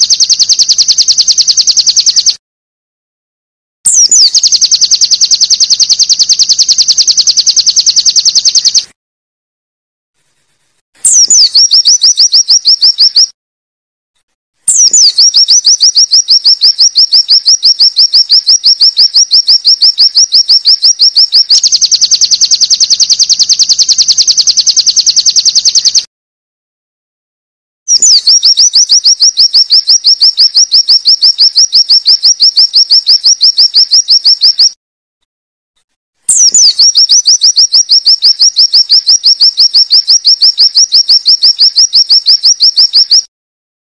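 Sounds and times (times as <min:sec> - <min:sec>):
bird singing rapid high notes: 0:03.9 - 0:08.8, 0:11.0 - 0:13.3, 0:14.7 - 0:25.8, 0:27.9 - 0:34.7, 0:36.3 - 0:43.2.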